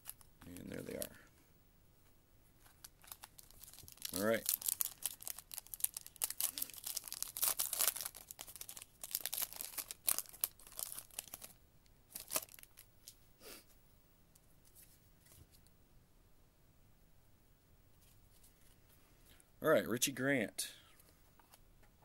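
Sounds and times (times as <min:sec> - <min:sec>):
foil wrapper tearing and crinkling: 0:02.7 - 0:12.9.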